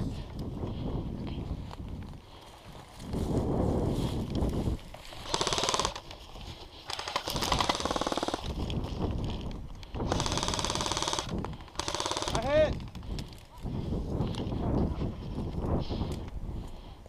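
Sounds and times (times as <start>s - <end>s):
airsoft rifle full-auto bursts: 5.2s - 6.1s, 6.9s - 8.5s, 10.0s - 12.6s.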